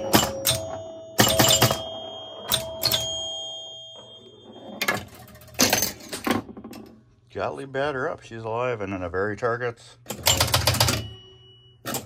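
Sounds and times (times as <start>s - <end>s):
pinball bumpers and solenoids snapping: 0.0s - 3.3s, 10.1s - 12.0s
pinball bell ringing: 0.0s - 6.3s, 10.1s - 12.0s.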